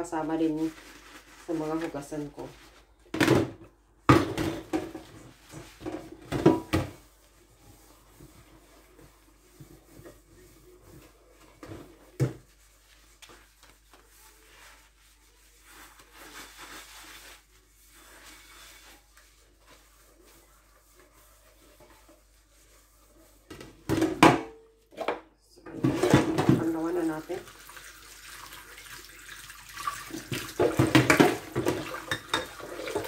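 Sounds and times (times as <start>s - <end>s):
sponge scrubbing metal pot: 4.7s - 23.6s, 25.8s - 33.0s
pot clattering: 30.4s - 33.0s.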